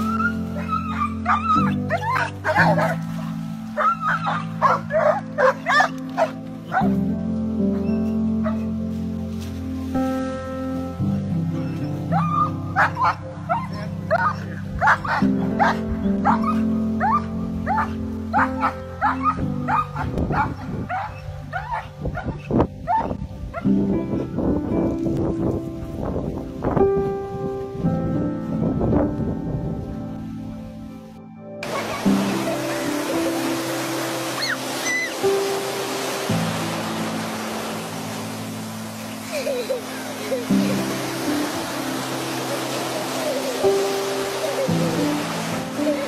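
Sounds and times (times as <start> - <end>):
dogs barking and yipping: 0.0 - 7.0, 7.7 - 8.8, 11.6 - 23.8, 31.6 - 36.3, 38.8 - 46.0
dogs whining: 0.0 - 7.0, 11.6 - 23.6
background music with held notes: 0.0 - 46.0.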